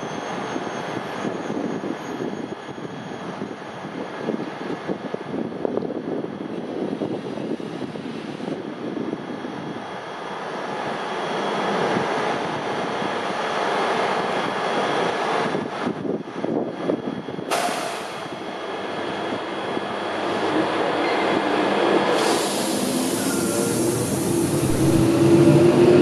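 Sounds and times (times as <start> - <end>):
electric train passing: 9.5 - 26.0.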